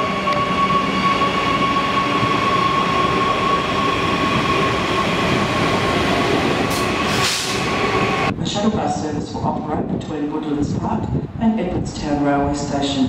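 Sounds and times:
electric train high whine: 0.0s - 8.3s
train wheels rumbling on rails: 0.0s - 12.8s.

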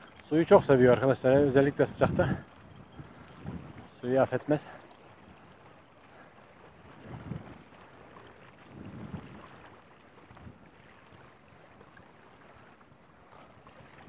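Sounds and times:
wind noise on microphone: 0.0s - 4.1s, 6.7s - 11.3s, 13.3s - 14.0s.

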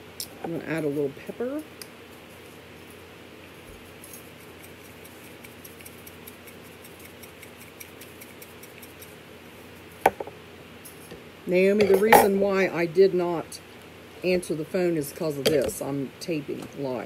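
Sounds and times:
container knocking on table: 10.1s - 10.3s.

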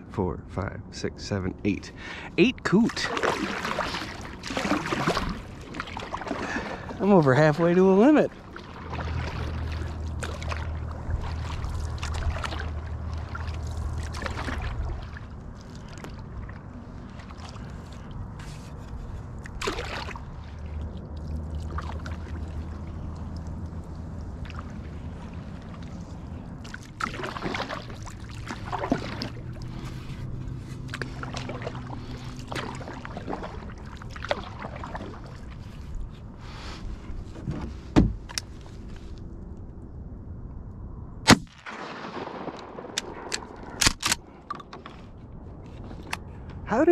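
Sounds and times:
paddle strokes in water: 2.8s - 39.2s
paddle knocking against hull: 37.4s - 38.3s.

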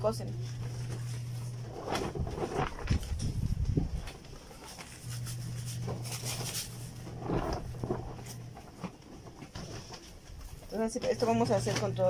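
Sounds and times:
steady low hum: 0.0s - 12.0s
dough scraping in sugar: 4.9s - 8.8s.

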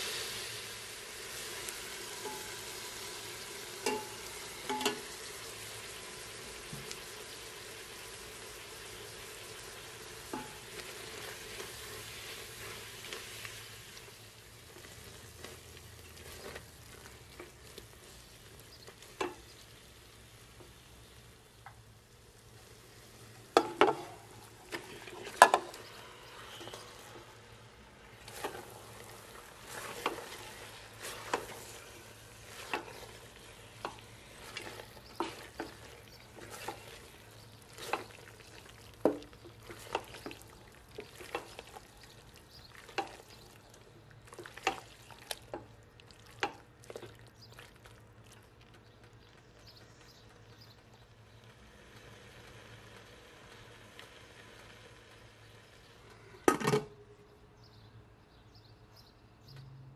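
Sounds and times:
faint sizzle: 0.0s - 59.9s
spatula scraping a pot: 23.6s - 27.4s, 28.2s - 41.9s.

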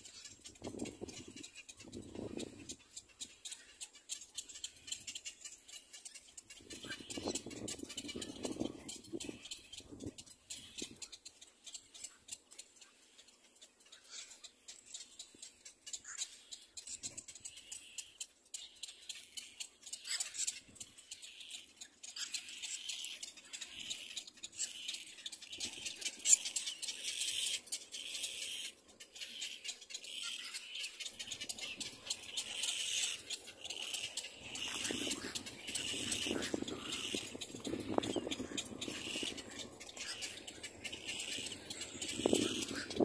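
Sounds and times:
faint clicking: 0.0s - 43.0s
chick begging squeaks: 13.9s - 43.0s.

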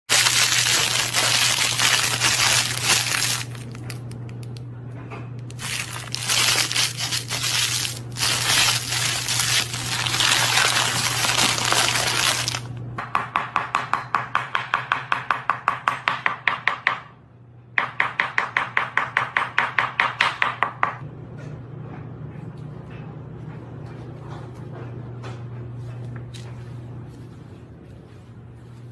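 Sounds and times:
plastic bag crinkling: 0.1s - 4.2s, 5.5s - 12.7s.

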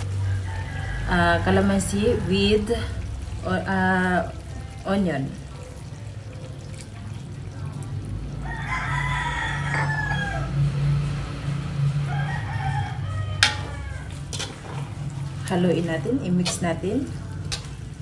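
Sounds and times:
rooster crowing: 0.0s - 1.5s, 8.4s - 11.0s, 11.8s - 14.4s.

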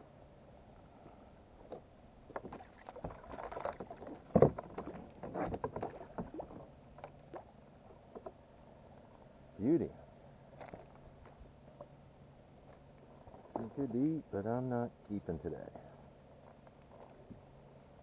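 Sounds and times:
knocks and clatters on kayak: 1.6s - 7.2s
fish splashing at water surface: 2.4s - 6.6s.

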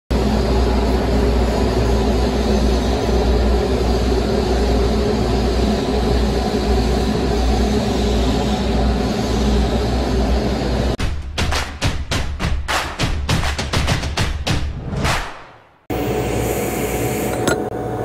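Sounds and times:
workshop machinery drone: 0.1s - 11.0s, 15.9s - 18.0s.

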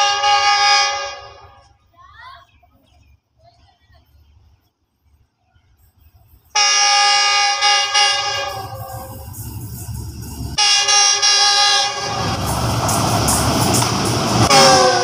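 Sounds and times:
train horn blasts: 0.0s - 1.7s, 6.6s - 9.3s, 10.6s - 12.6s, 14.4s - 15.0s
locomotive engine and wheels rumbling: 0.0s - 15.0s.

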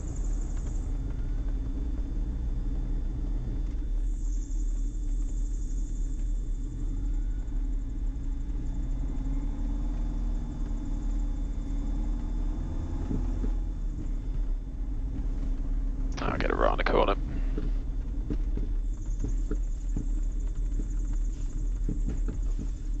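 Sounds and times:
aircraft engines and propellers droning: 0.0s - 8.7s.

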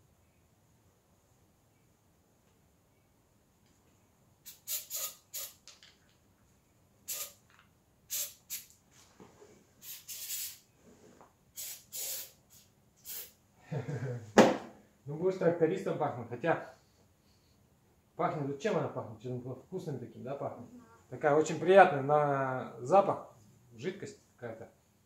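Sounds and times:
aerosol spray hissing bursts: 4.4s - 5.6s, 7.0s - 7.5s, 8.1s - 8.8s, 9.8s - 10.7s, 11.6s - 13.4s
sharp knock: 14.4s - 14.8s.

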